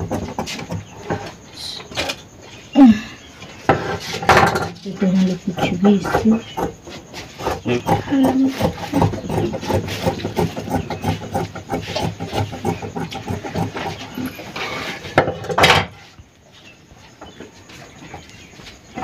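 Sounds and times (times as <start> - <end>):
blades scraping on wood: 0.0 - 1.5, 3.7 - 15.2
shears cutting fabric: 7.3 - 15.0.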